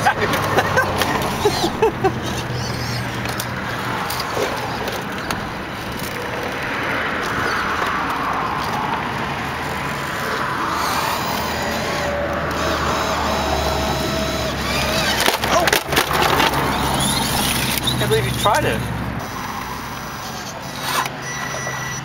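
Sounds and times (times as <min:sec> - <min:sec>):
electric motor and gearbox whining: 0:00.0 - 0:22.0.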